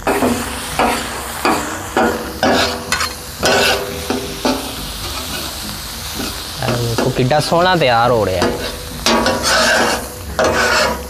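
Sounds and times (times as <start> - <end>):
food sizzling: 0.0 - 11.0
spatulas clanging on griddle: 0.0 - 11.0.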